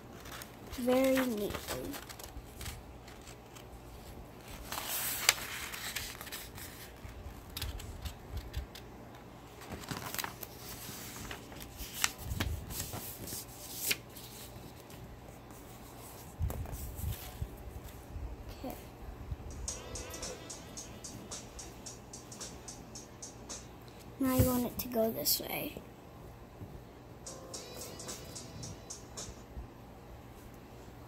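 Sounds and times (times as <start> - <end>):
sharp paper clicks: 0.0 - 3.8, 4.5 - 10.6
paper rustling: 0.0 - 8.9, 9.6 - 17.9.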